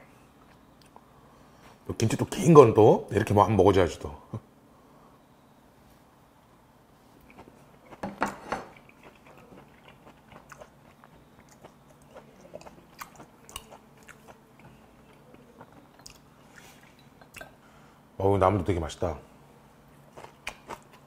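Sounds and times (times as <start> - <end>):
wet chewing: 7.2 - 17.6, 20.1 - 21.0.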